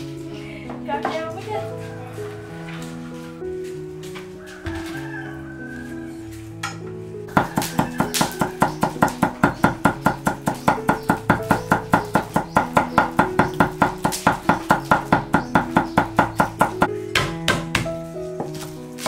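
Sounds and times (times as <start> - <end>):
knife chopping on wooden board: 7.3 - 18.7.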